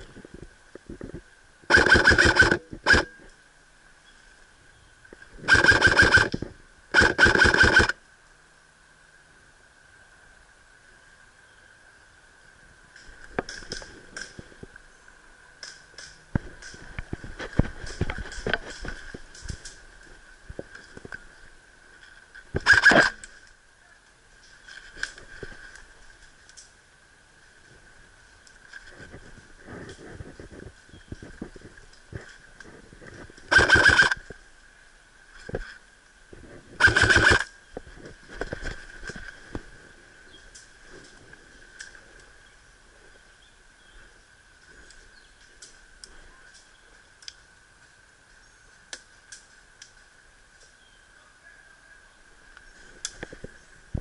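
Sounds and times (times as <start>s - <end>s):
airsoft rifle firing burst: 1.7s - 3.1s, 5.5s - 6.3s, 6.9s - 8.0s, 22.6s - 23.2s, 33.5s - 34.2s, 36.8s - 37.4s
faint sharp clicks: 44.8s - 47.9s, 48.9s - 50.8s.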